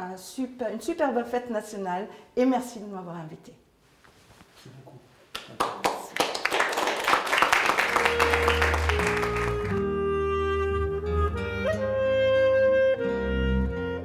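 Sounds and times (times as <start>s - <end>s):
small group applauding: 5.3s - 10.0s
clarinet-led folk music: 7.8s - 14.0s.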